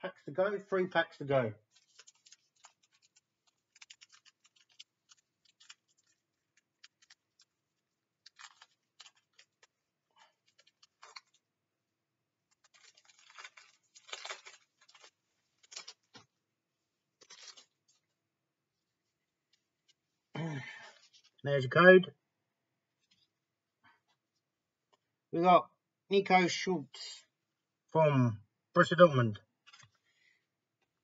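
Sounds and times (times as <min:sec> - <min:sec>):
foil card pack crinkling: 0:01.6 - 0:11.5, 0:12.4 - 0:16.3, 0:17.2 - 0:18.1.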